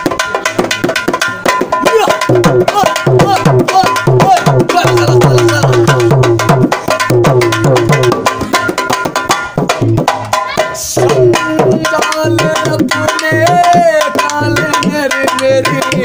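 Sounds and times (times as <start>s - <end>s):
dholak folk rhythm: 0.0s - 16.0s
man singing: 1.8s - 8.3s, 10.6s - 16.0s.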